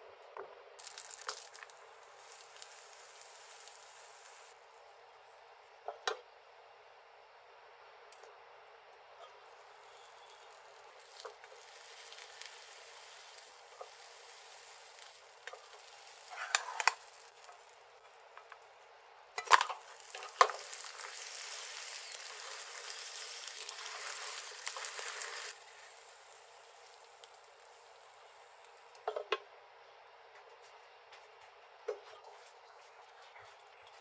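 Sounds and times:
food sizzling in a frying pan: 0.8s - 4.6s, 9.6s - 18.1s, 19.4s - 28.7s.

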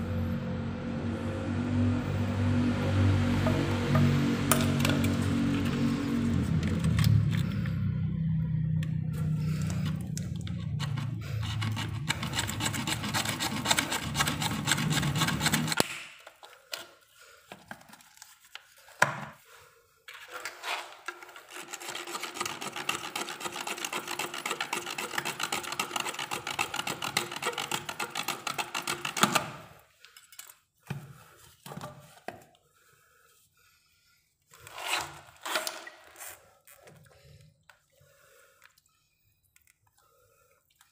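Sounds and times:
hacksaw cutting plastic pipe: 9.8s - 16.9s, 20.6s - 29.8s, 34.6s - 36.3s.

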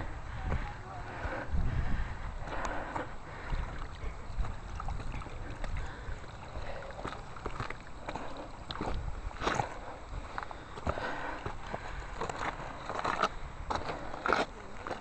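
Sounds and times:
wind noise on microphone: 0.0s - 7.7s, 8.6s - 14.4s
footsteps on rocky ground: 2.3s - 15.0s.

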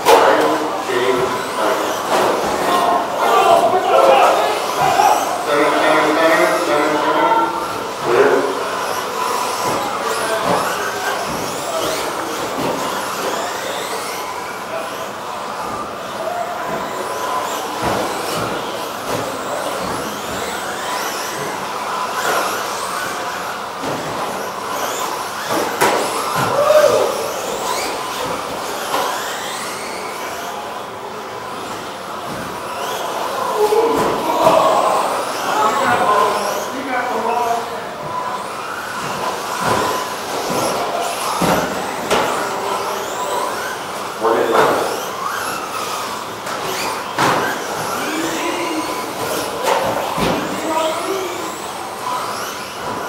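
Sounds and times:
high electric motor whines: 0.0s - 53.0s.

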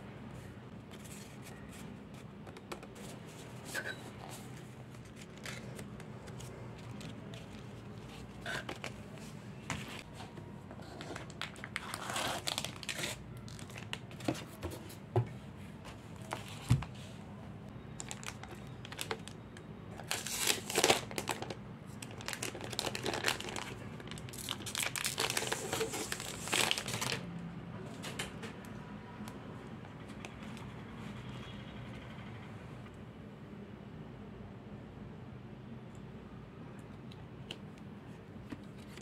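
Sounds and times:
plastic shrink-wrap crinkling and tearing: 11.1s - 14.1s, 18.0s - 19.4s, 20.0s - 27.2s.

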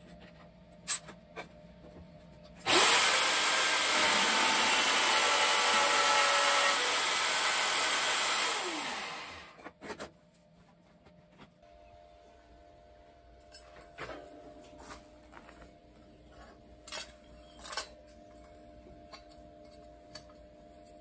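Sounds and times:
drill press motor whine: 2.6s - 9.6s
drill bit boring into wood: 2.7s - 9.5s.

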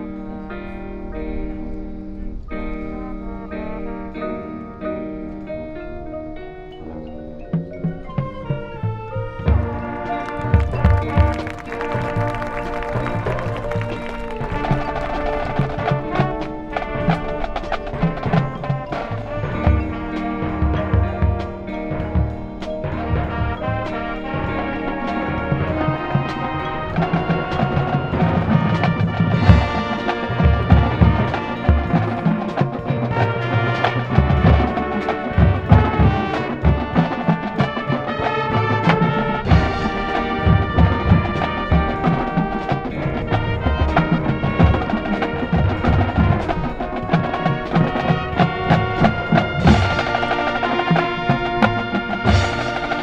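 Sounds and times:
marching band playing: 7.4s - 53.0s
drum hits: 9.5s - 23.9s, 27.0s - 53.0s.

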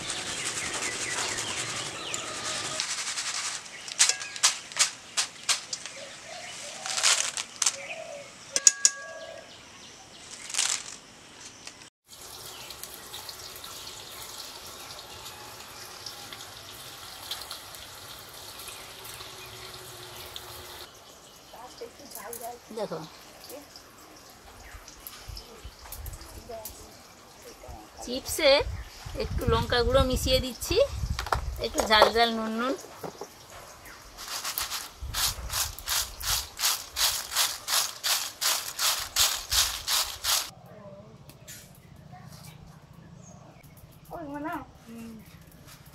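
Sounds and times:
chips rattling in mesh strainer: 0.0s - 6.0s, 6.8s - 7.8s, 34.2s - 40.5s
banana slices deep-frying in oil: 12.0s - 28.5s.

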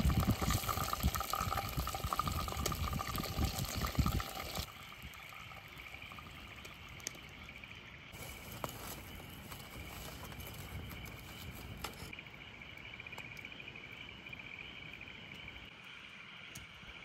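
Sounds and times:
campfire crackling and popping: 0.0s - 15.6s
crickets chirping: 0.0s - 17.0s.

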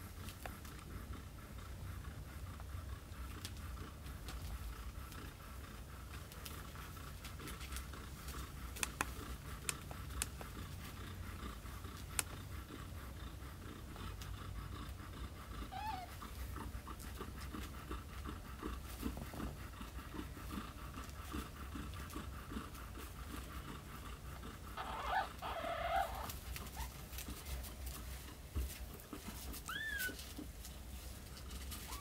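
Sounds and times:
kittens suckling: 0.0s - 32.0s
kitten squeaky cries: 15.7s - 16.1s, 29.6s - 30.2s.

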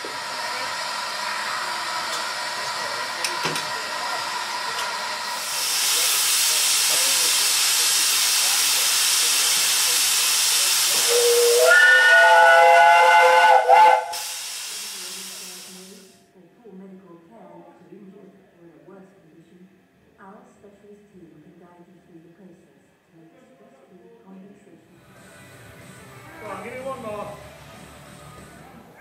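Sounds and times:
steam hissing: 0.0s - 16.2s
steam whistle: 10.9s - 14.9s.

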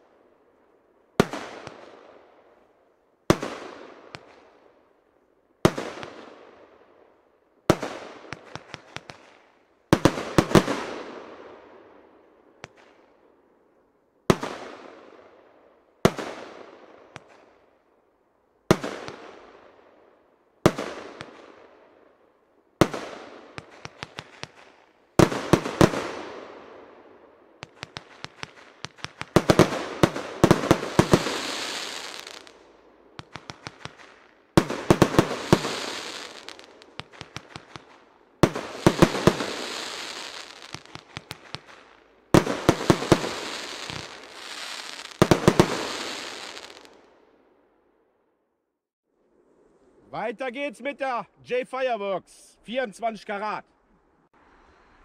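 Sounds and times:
small firework pops: 3.3s - 4.5s, 7.7s - 10.8s, 12.6s - 13.1s, 17.1s - 17.6s, 22.8s - 26.0s, 27.6s - 32.6s, 33.2s - 47.0s
firework bangs with echo: 22.8s - 26.6s, 27.6s - 32.5s, 33.2s - 47.0s
firework hiss: 28.1s - 32.6s, 34.7s - 37.8s, 38.5s - 46.9s.

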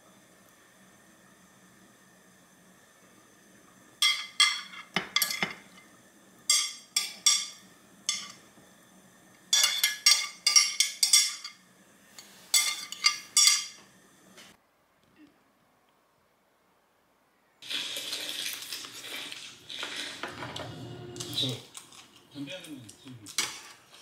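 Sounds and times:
metal utensils clinking on plates: 4.0s - 5.9s, 6.5s - 8.4s, 9.5s - 11.6s, 12.2s - 13.8s.

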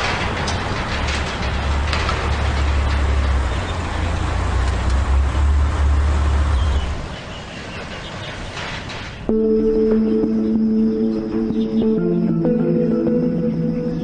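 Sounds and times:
car engine rumble driving past: 1.5s - 7.2s.

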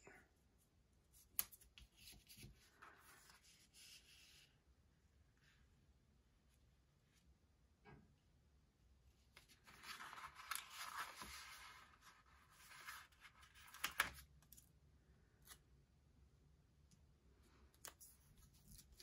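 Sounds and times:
paper sticker sheets rustling: 9.4s - 14.3s.

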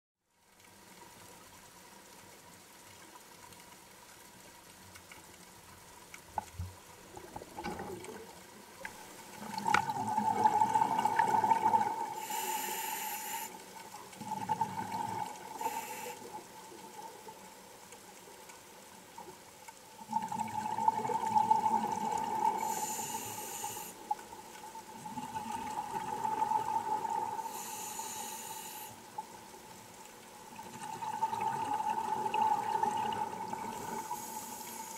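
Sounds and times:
regulator hissing breaths: 12.1s - 13.8s, 15.5s - 16.4s, 22.6s - 24.1s, 27.4s - 29.1s, 33.9s - 34.9s.

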